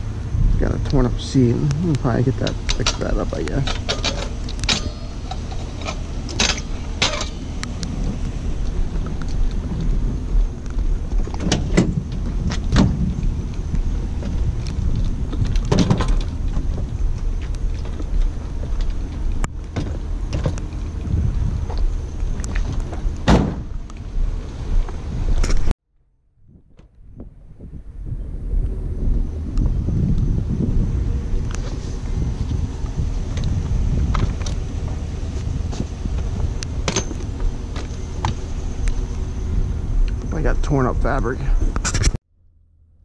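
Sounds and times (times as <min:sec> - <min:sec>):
low rumble: 0:00.0 - 0:43.0
bicycle rattles and clanks: 0:02.0 - 0:23.7, 0:29.6 - 0:40.5.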